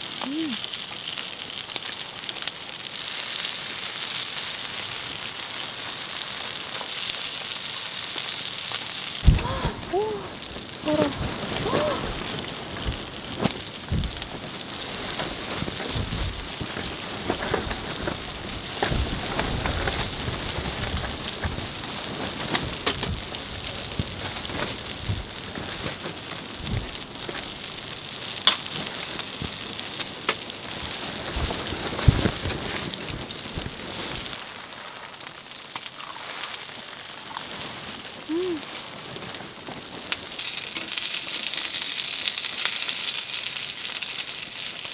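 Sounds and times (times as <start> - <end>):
rain pattering on a tent: 0.0 - 44.9
soft low thumps: 9.2 - 13.1, 13.9 - 14.5, 23.0 - 25.6, 26.6 - 27.0.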